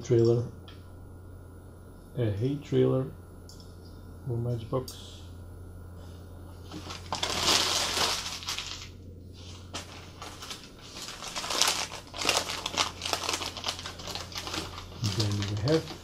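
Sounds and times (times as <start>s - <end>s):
low steady hum: 0.0s - 16.0s
newspaper crumpling: 6.7s - 16.0s.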